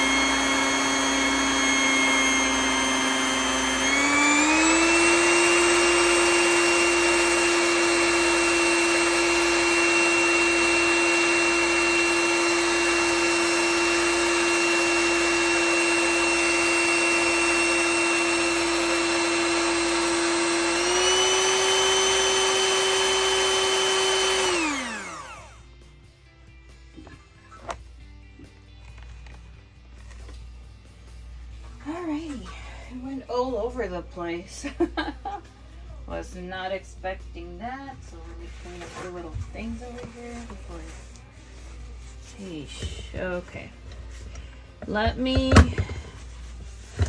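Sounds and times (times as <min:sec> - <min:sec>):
electric hand mixer whine: 0:00.0 - 0:25.7.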